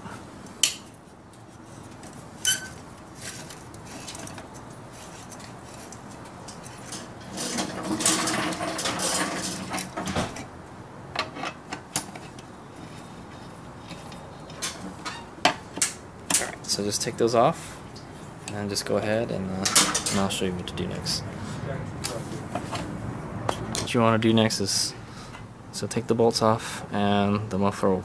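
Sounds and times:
wrench turning and scraping: 0:02.4 - 0:10.0.

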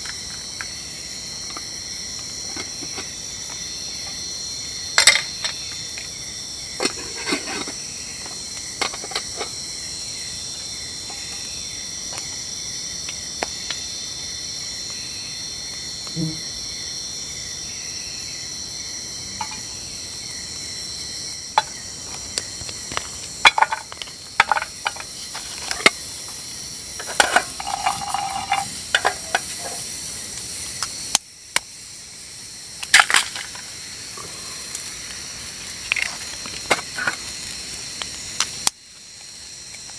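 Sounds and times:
crickets chirping: 0:00.0 - 0:39.9
utensils knocking on camp pot: 0:05.0 - 0:05.6, 0:08.8 - 0:09.6, 0:19.4 - 0:19.7, 0:23.4 - 0:26.0, 0:27.0 - 0:29.9, 0:36.6 - 0:37.2.

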